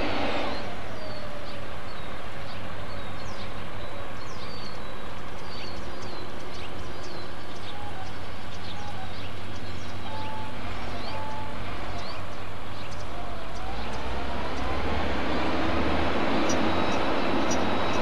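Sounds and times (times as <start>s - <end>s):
low whistled notes: 0.0s - 2.1s
small birds chirping: 0.0s - 18.0s.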